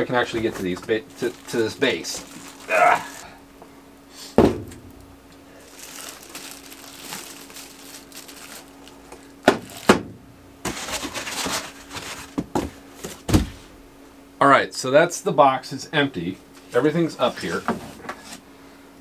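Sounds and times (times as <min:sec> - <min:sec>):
faint steady hum: 0:00.0 - 0:19.0
plastic wrapping crinkling: 0:00.4 - 0:03.3, 0:05.5 - 0:10.0.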